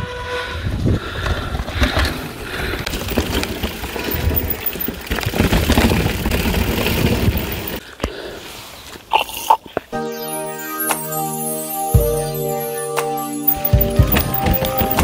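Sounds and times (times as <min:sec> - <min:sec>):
wind rumbling on microphone: 0:00.0 - 0:07.8
bike rattling over roots and stones: 0:01.3 - 0:07.8, 0:13.8 - 0:15.0.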